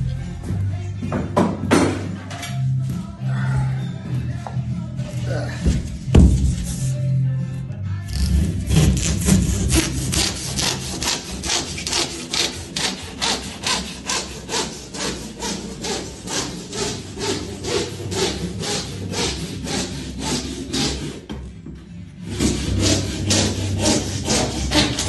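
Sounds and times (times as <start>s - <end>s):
handsaw cutting insulation board: 8.1s - 21.3s, 22.2s - 25.0s.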